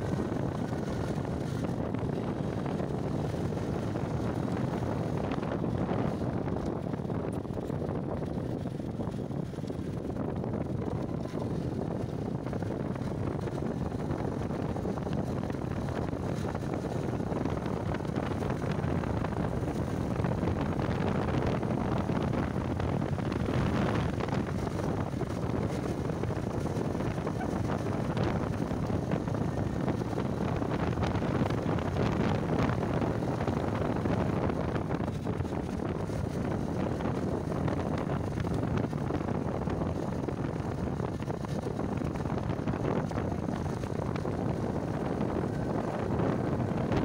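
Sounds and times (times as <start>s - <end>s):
motorcycle engine running: 0.0s - 47.0s
wind rushing over microphone: 0.0s - 47.0s.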